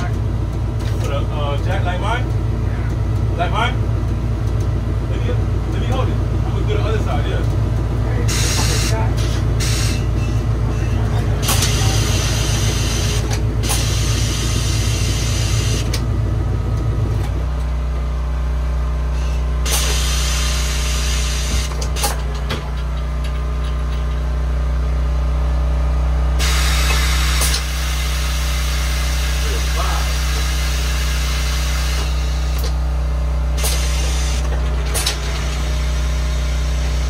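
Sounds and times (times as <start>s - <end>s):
low motor drone: 0.0s - 37.0s
air hissing: 8.3s - 15.9s, 19.1s - 22.2s, 26.4s - 32.8s, 33.6s - 37.0s.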